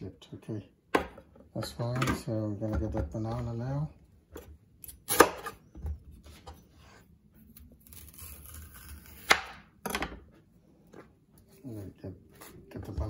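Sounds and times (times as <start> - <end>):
knife scraping: 6.8 - 9.4.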